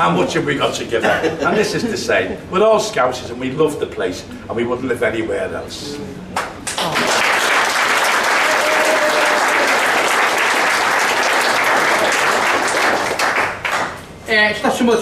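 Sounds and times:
audience applauding: 6.4 - 14.0.

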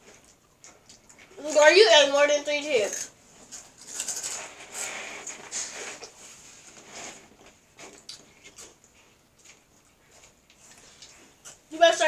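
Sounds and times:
crunchy snacks being chewed: 2.9 - 6.2
snacks rummaged in a pile: 2.9 - 6.2.

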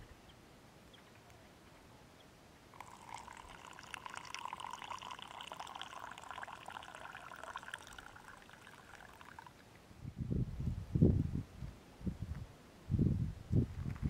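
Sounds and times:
liquid trickling into a cup: 2.8 - 9.6.

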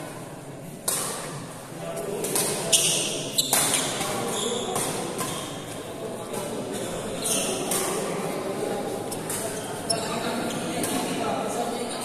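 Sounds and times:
murmur of spectators: 0.0 - 12.0
racket striking shuttlecock: 2.2 - 5.4
shoes squeaking on court: 2.7 - 5.7, 6.3 - 7.9, 9.0 - 11.0.

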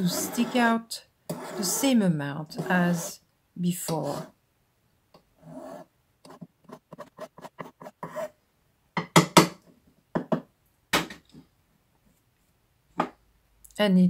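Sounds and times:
hand file rasping on metal: 0.0 - 1.9, 2.5 - 3.2.

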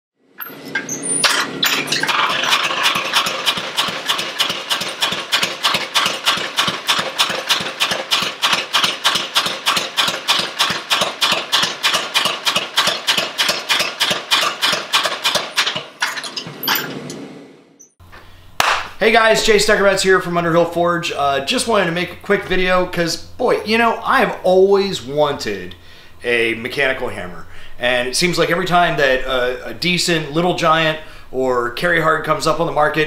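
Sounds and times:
power hammer striking hot steel: 0.4 - 18.0
motor and belt hum: 0.5 - 15.6.

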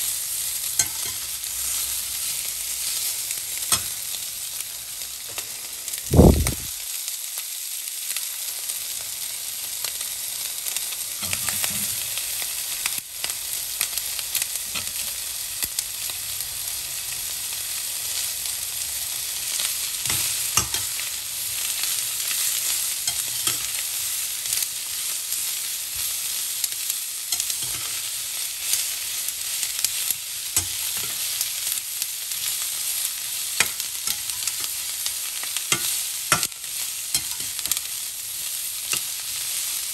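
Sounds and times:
chicken and peppers sizzling: 0.0 - 39.9
metal turner scraping pan: 11.2 - 12.2, 23.1 - 23.8, 27.3 - 28.1, 30.6 - 31.4.

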